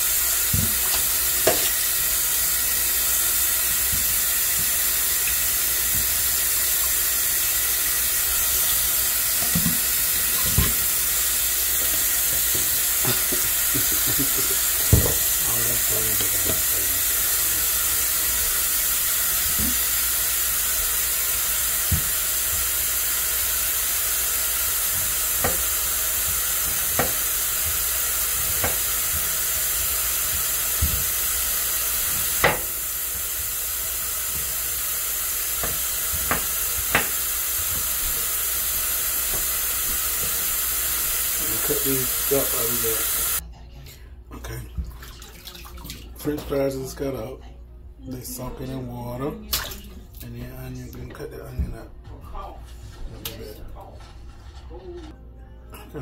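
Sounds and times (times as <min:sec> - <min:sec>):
knife knocking on cutting board: 0:27.0 - 0:27.2, 0:32.4 - 0:32.7, 0:35.6 - 0:37.2.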